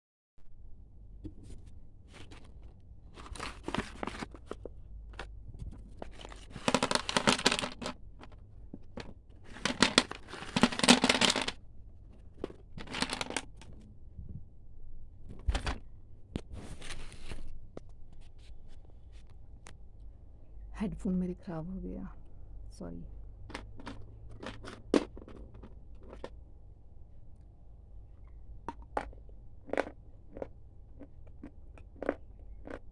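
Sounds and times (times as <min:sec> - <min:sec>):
plastic snack packet crinkling: 0:02.1 - 0:11.6, 0:12.4 - 0:13.7, 0:23.5 - 0:26.4.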